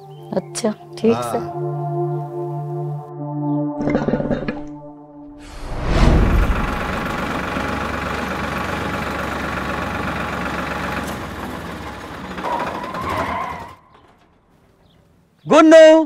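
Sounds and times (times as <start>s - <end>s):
wavering whine: 5.3s - 7.9s
tractor diesel engine running: 6.1s - 14.9s.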